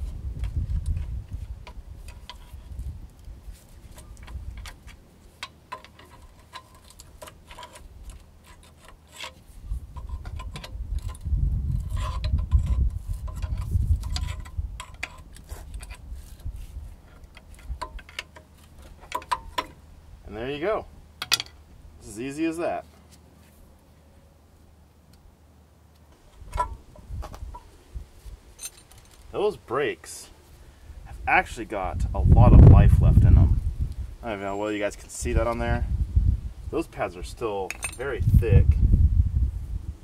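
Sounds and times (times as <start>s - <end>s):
metal tools clinking: 28.5s - 29.3s, 37.6s - 38.2s.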